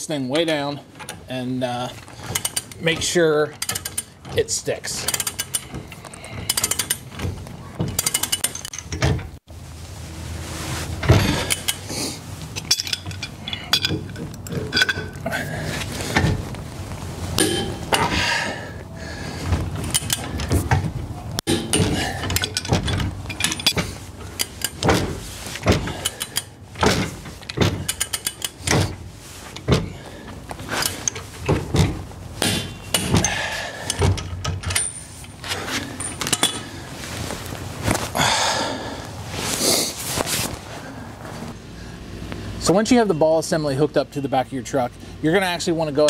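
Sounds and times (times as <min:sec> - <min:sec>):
torque wrench clicks and clanks: 0:02.2 - 0:04.3, 0:04.9 - 0:09.0, 0:25.8 - 0:26.5, 0:27.4 - 0:28.8.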